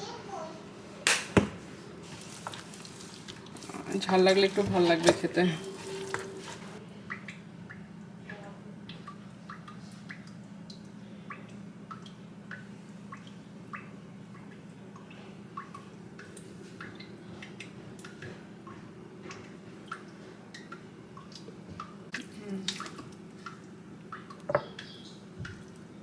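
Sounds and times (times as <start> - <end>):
water dripping into water: 6.1 - 26.0.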